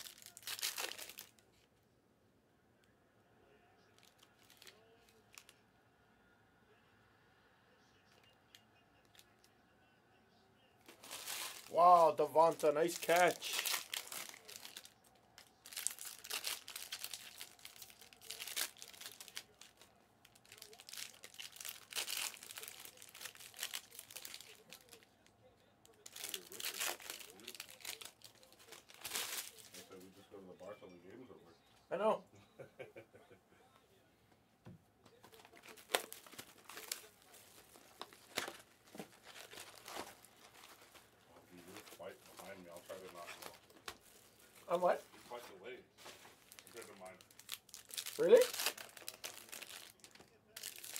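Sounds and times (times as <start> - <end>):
wrapper crinkling and tearing: 0.0 - 1.5, 4.0 - 5.6, 10.9 - 25.2, 25.9 - 30.0, 35.2 - 45.0, 46.0 - 50.9.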